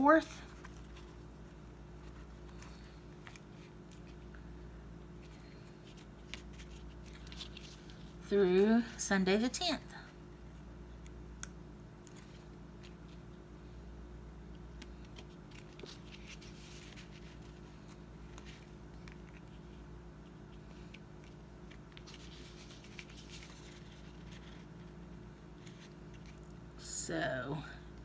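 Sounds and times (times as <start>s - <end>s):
steady low hum: 0.0s - 28.0s
stickers peeling and rustling: 5.2s - 8.2s, 14.7s - 26.6s.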